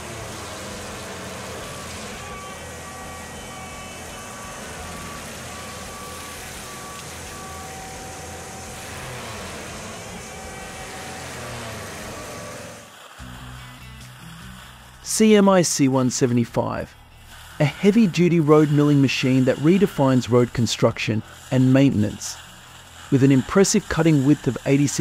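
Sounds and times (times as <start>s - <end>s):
reversing alarm beeping: 0.0s - 12.9s
diesel mulcher running: 0.0s - 25.0s.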